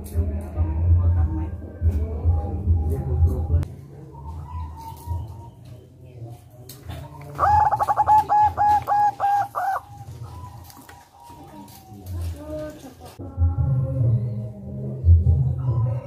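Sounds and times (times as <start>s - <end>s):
dove cooing: 2.5s - 13.2s, 15.2s - 16.0s.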